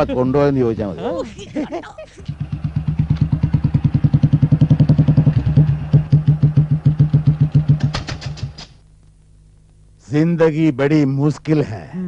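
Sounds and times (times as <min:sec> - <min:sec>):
motorcycle engine chugging: 0:02.2 - 0:08.6.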